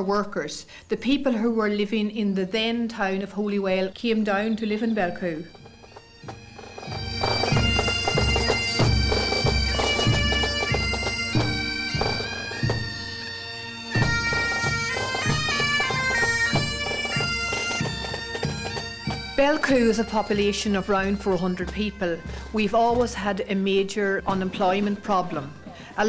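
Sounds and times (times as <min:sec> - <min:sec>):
bagpipes playing a tune: 0:04.5 - 0:26.0
drum beating steadily: 0:05.4 - 0:26.0.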